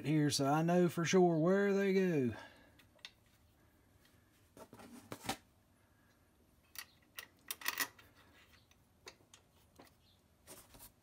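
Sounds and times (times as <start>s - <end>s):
metal bolts clicking and clinking: 6.6s - 9.5s.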